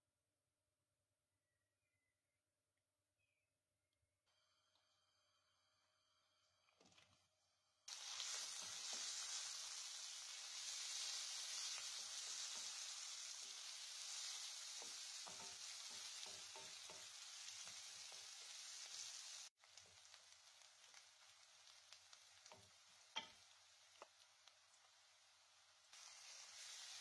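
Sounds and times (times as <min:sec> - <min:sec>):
onions sizzling in hot oil: 0:07.8 - 0:27.0.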